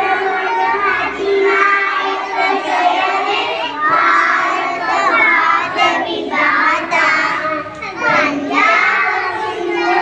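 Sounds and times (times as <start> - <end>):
young children singing: 0.0 - 10.0.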